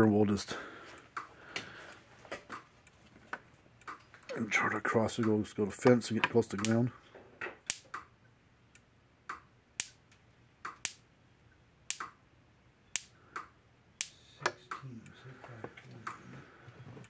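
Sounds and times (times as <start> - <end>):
faint clicks: 5.2 - 5.4
electric sparks snapping: 6.6 - 6.8, 7.7 - 8.0, 9.8 - 10.0, 10.7 - 11.0, 11.9 - 12.1, 13.0 - 13.2.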